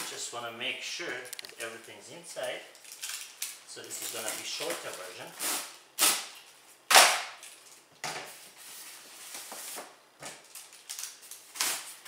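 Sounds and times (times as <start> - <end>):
loud crack: 6.9 - 7.4.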